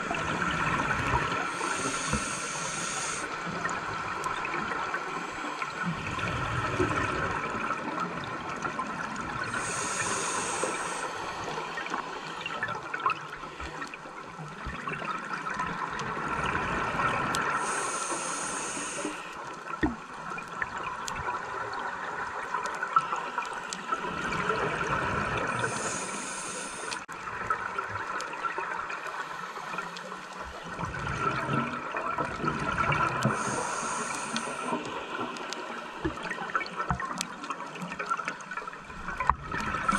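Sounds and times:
rush of exhaled bubbles: 0.0s - 13.3s, 30.6s - 35.4s
hissing regulator inhale: 1.3s - 3.5s, 9.5s - 12.6s, 17.5s - 19.5s, 25.5s - 27.1s, 33.2s - 35.1s.

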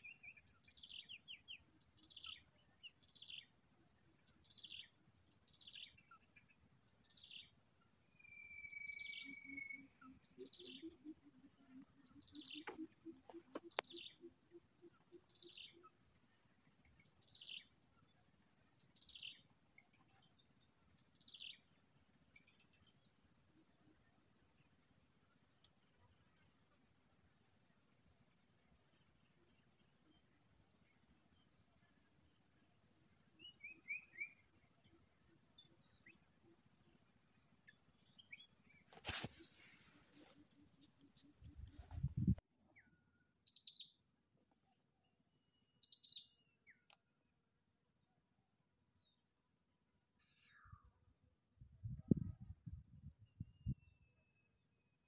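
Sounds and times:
faint steady high tone: 7.4s - 11.0s
bird calling: 8.3s - 15.9s.

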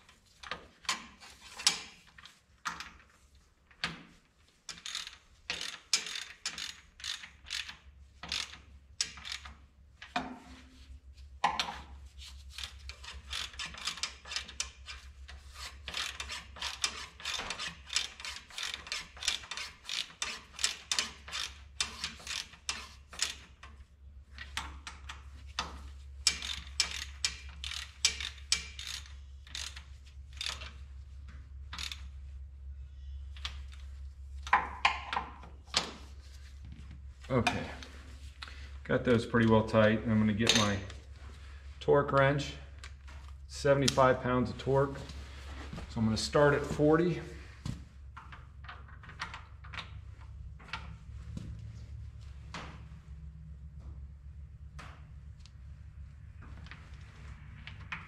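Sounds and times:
hand ratchet clicking: 0.4s - 3.0s, 4.7s - 9.6s, 11.6s - 23.8s, 24.4s - 30.8s, 31.7s - 32.1s.

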